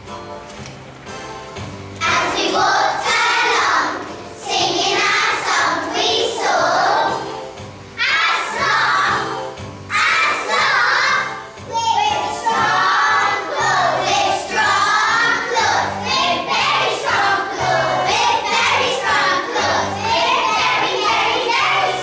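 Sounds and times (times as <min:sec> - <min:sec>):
children singing in unison: 0:02.0 - 0:07.3, 0:08.0 - 0:11.4, 0:12.2 - 0:22.0.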